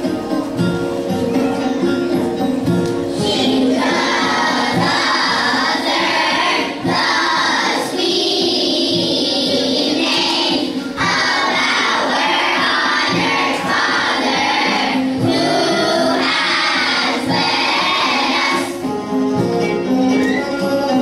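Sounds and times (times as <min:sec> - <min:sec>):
instrumental accompaniment: 0:00.0 - 0:21.0
choir singing a hymn: 0:03.1 - 0:19.0.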